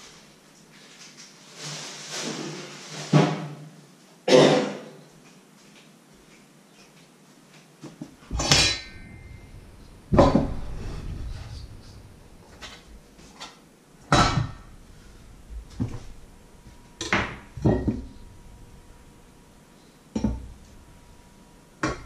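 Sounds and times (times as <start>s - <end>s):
crockery and utensils clattering: 8.3s - 13.0s, 14.1s - 19.1s.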